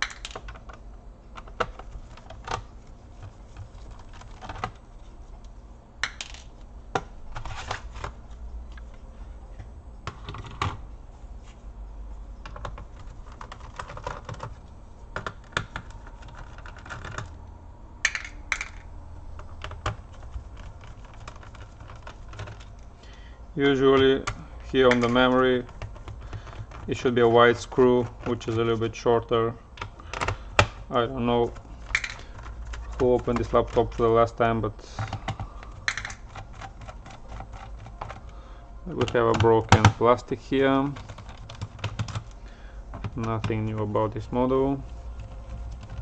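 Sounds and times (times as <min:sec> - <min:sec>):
steady low hum: 0:00.0 - 0:46.0
plastic case and screws handled: 0:31.5 - 0:33.9, 0:35.0 - 0:38.3.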